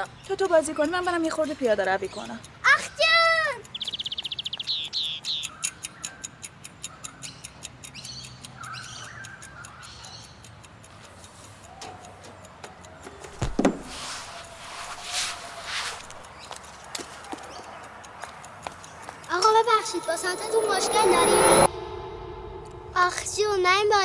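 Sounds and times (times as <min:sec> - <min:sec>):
birds chirping: 0:00.0 - 0:10.7, 0:16.2 - 0:20.2
watch ticking: 0:00.0 - 0:24.0.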